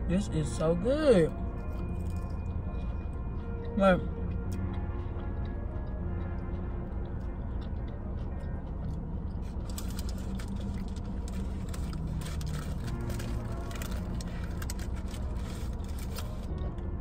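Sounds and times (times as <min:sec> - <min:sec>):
steady low hum in car: 0:00.0 - 0:17.0
person chewing: 0:01.3 - 0:02.6, 0:04.0 - 0:16.8
paper wrapper rustling: 0:09.7 - 0:16.5.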